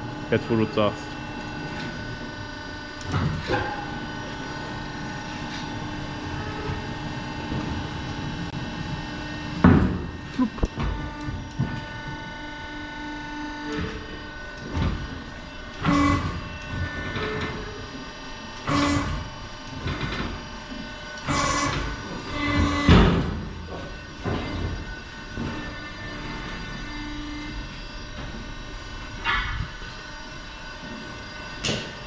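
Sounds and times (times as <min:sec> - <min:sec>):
tyre changer machine hum: 0:00.0 - 0:32.0
clanks and thumps: 0:21.3 - 0:25.8.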